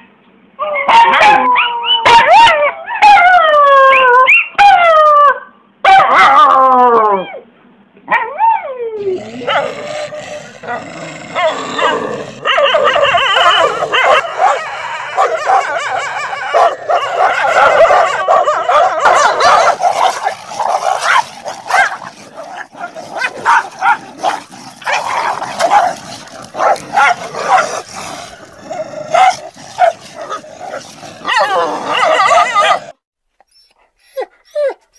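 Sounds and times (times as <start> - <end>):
small dog howling: 0.7 - 7.4, 8.2 - 27.9, 29.0 - 33.0
dog yelping: 0.8 - 3.2, 9.0 - 34.9
dogs snarling and growling: 9.0 - 33.0.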